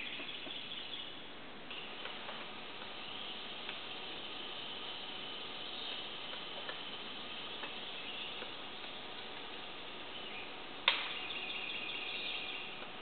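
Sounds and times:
woodpecker sharp knock: 0:10.8 - 0:11.5.

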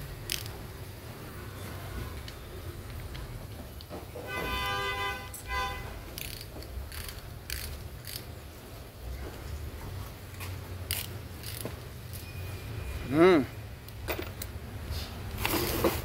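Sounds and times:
ratchet wrench clicking: 0:00.2 - 0:00.6, 0:06.1 - 0:08.3, 0:10.3 - 0:12.2.

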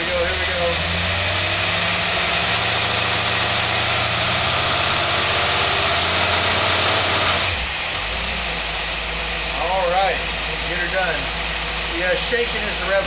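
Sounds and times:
rev limiter stutter: 0:00.0 - 0:08.6
engine idling: 0:00.0 - 0:13.0
engine revving hard: 0:00.0 - 0:13.0.

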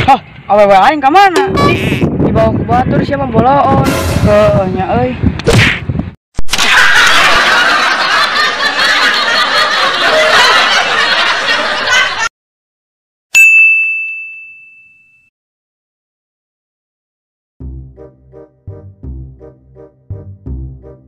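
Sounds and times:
canned crowd laughter: 0:06.6 - 0:12.3
bell ding: 0:13.3 - 0:15.3.

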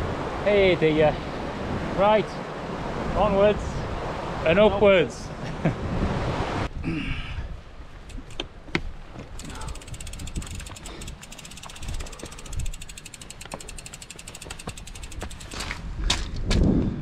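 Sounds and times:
wind rumble on microphone: 0:02.6 - 0:13.1, 0:13.7 - 0:17.0
bicycle freewheel hub ticking: 0:08.0 - 0:08.4, 0:09.3 - 0:15.8.

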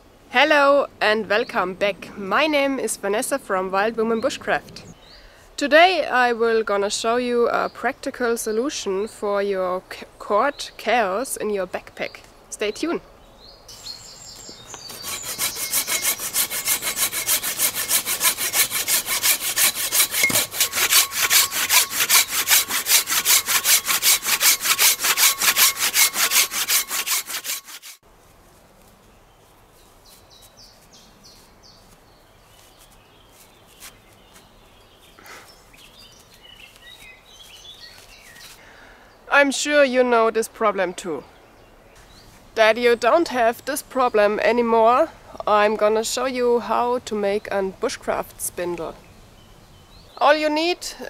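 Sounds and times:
hand saw cutting wood: 0:14.7 - 0:28.0
faint rustles: 0:28.1 - 0:38.7.

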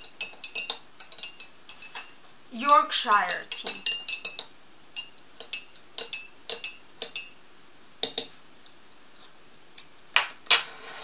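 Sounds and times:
teaspoon clinking against glass mug: 0:00.0 - 0:02.2, 0:03.1 - 0:07.3.

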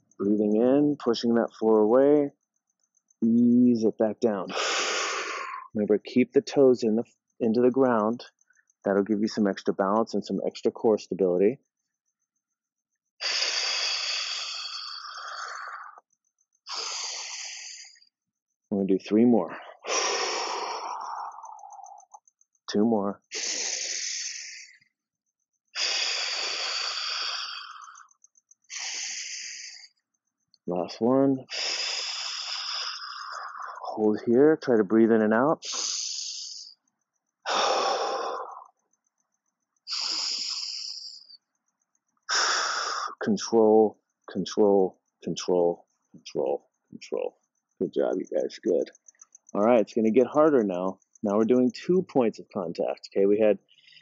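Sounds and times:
man breathing: 0:04.5 - 0:05.7, 0:13.2 - 0:16.0, 0:16.7 - 0:18.1, 0:19.5 - 0:22.2, 0:23.3 - 0:24.9, 0:25.8 - 0:29.9, 0:31.4 - 0:34.0, 0:35.6 - 0:36.7, 0:37.4 - 0:38.7, 0:39.9 - 0:41.4, 0:42.3 - 0:43.2, 0:53.6 - 0:54.0.

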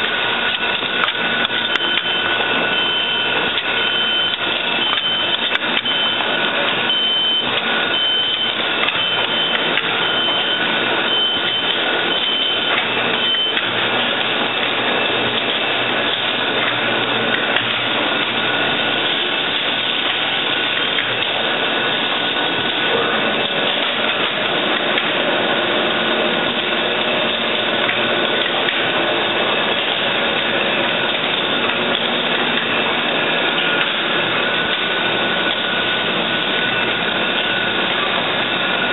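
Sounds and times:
machinery clattering and humming: 0:00.0 - 0:38.9
high beep: 0:01.7 - 0:06.3, 0:06.9 - 0:13.6.

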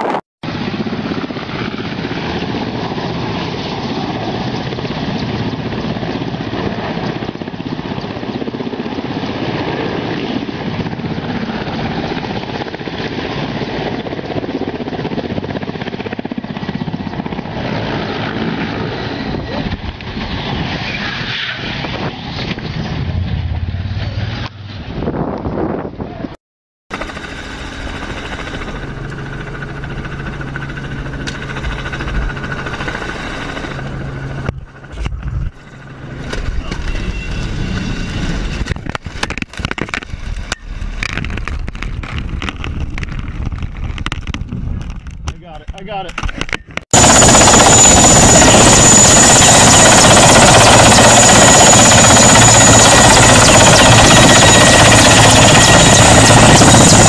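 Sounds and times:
helicopter engine and rotor drone: 0:00.4 - 0:21.0, 0:26.9 - 0:43.0, 0:44.0 - 0:57.0
high-pitched whine: 0:20.9 - 0:25.8.

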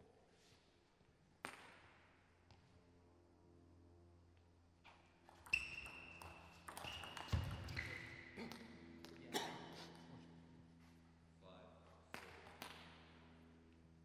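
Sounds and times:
shoes squeaking on floor: 0:05.2 - 0:08.4.

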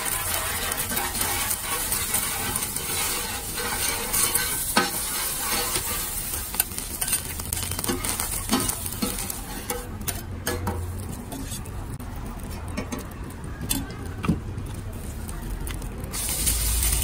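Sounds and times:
spatulas scraping metal plate: 0:00.0 - 0:11.7
eggs sizzling in oil: 0:00.0 - 0:17.0.

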